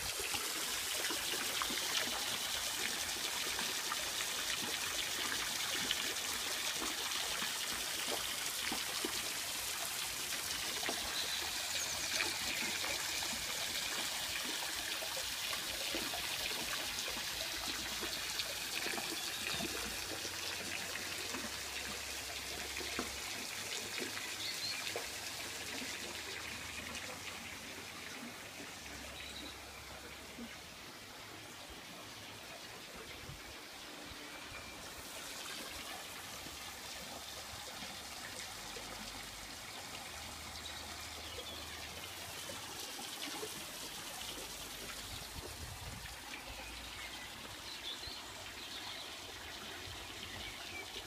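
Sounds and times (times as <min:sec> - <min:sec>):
pond waterfall trickling: 0:00.0 - 0:51.0.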